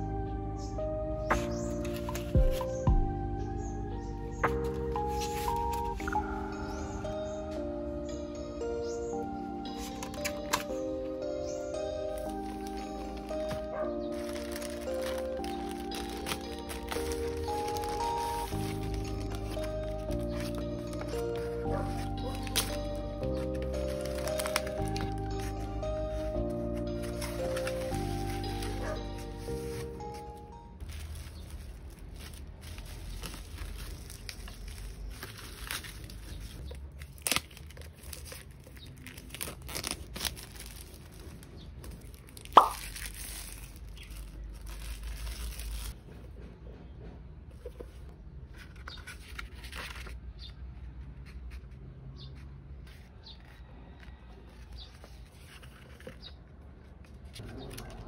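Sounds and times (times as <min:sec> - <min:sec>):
handling of hardbound planner: 0:01.3 - 0:02.8, 0:04.4 - 0:06.3, 0:09.8 - 0:10.8, 0:11.4 - 0:46.0, 0:48.6 - 0:50.2, 0:54.6 - 0:58.0
pages being turned: 0:01.3 - 0:02.8, 0:04.4 - 0:06.3, 0:09.7 - 0:10.8, 0:12.0 - 0:46.0, 0:48.6 - 0:50.3, 0:52.9 - 0:56.4, 0:57.0 - 0:58.0
bubble-wrap mailer crinkling and tearing: 0:11.8 - 0:30.2, 0:30.8 - 0:46.0
bubble-wrap pops: 0:42.1 - 0:44.3.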